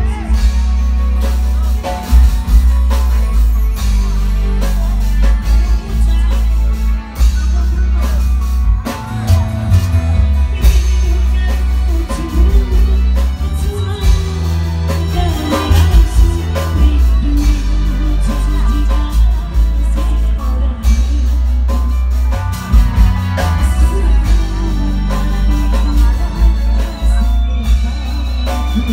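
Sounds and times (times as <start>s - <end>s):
drums: 0.0s - 28.9s
heavy bass: 0.0s - 28.9s
keyboard: 0.0s - 28.9s
woman singing: 10.5s - 22.0s, 23.0s - 28.9s.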